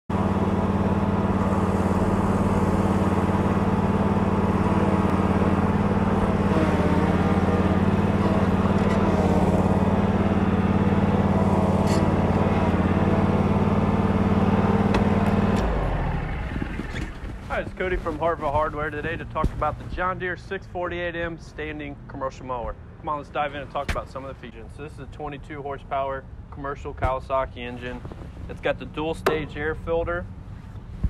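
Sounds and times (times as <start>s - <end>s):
mower engine running: 0.1s - 19.8s, 28.1s - 30.6s.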